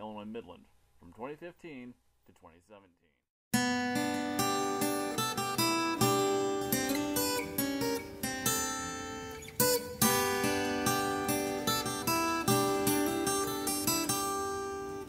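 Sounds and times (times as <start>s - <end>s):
acoustic guitar music: 3.5s - 15.0s.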